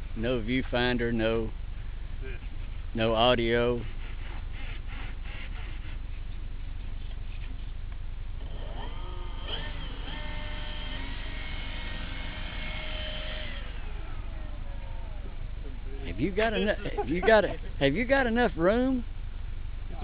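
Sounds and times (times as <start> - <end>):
model airplane motor whine: 8.4 - 15.9.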